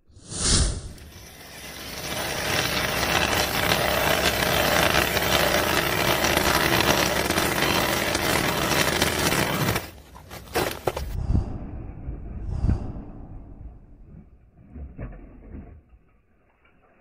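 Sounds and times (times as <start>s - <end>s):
ice auger boring through ice: 1.0s - 11.1s.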